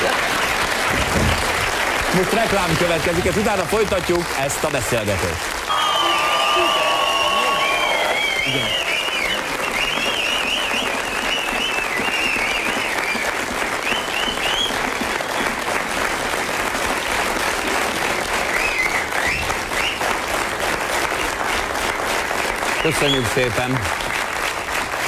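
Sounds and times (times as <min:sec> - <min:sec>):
audience applauding: 0:00.0 - 0:25.0
whistles: 0:05.7 - 0:15.4, 0:18.5 - 0:20.0.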